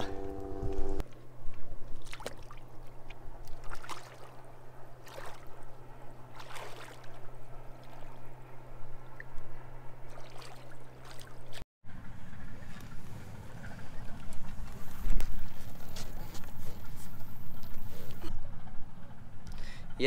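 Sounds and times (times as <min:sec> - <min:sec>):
low hum: 0:00.0 - 0:20.0
water splashing around legs: 0:01.8 - 0:05.6, 0:06.3 - 0:08.2, 0:10.1 - 0:11.6.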